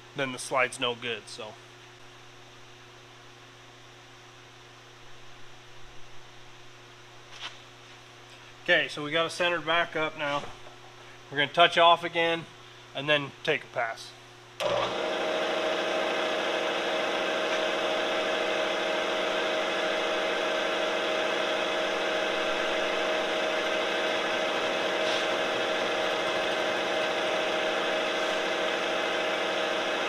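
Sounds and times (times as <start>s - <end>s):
milling machine motor humming: 14.6s - 30.0s.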